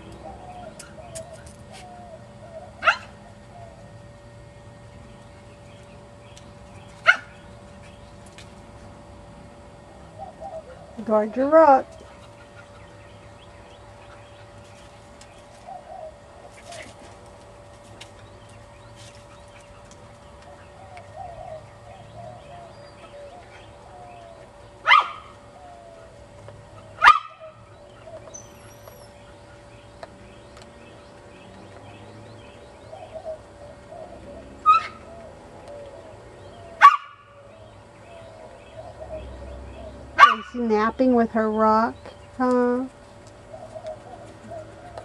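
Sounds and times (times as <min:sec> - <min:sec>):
dog barking: 0:02.8 - 0:03.2, 0:07.0 - 0:07.4, 0:24.8 - 0:25.3, 0:27.0 - 0:27.5, 0:36.8 - 0:37.3, 0:40.2 - 0:40.6.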